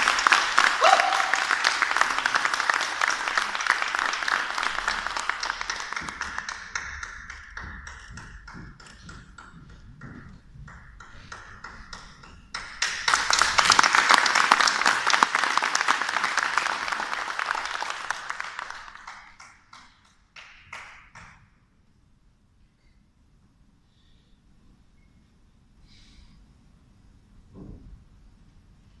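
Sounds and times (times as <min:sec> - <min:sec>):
audience applause: 0:00.0 - 0:08.6, 0:12.6 - 0:20.9.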